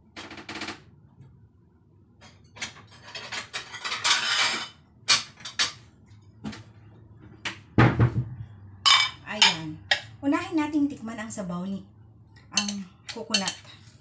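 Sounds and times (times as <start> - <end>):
crockery clattering and clinking: 2.3 - 5.8, 8.9 - 10.1.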